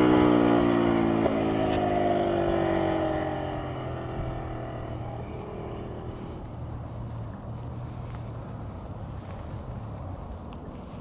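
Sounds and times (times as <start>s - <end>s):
motorcycle engine under throttle: 0.0s - 6.5s.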